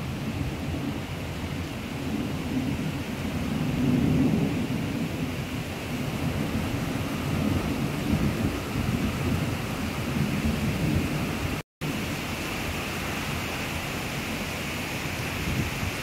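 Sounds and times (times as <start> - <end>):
thunder rumbling: 0.0 - 12.1
rain hissing: 0.0 - 16.0
wind: 0.0 - 16.0.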